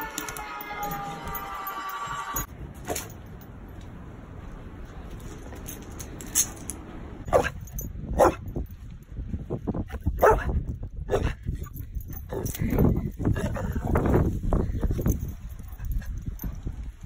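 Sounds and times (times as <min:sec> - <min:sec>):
dog barking: 0:07.3 - 0:07.6, 0:08.2 - 0:08.4, 0:10.2 - 0:10.5, 0:11.1 - 0:11.4.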